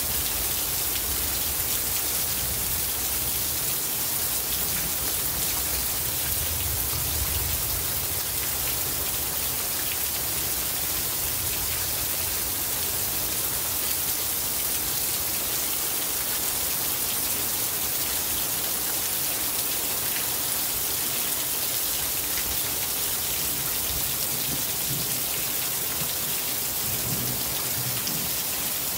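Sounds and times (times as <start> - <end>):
rain hissing: 18.8 - 28.9.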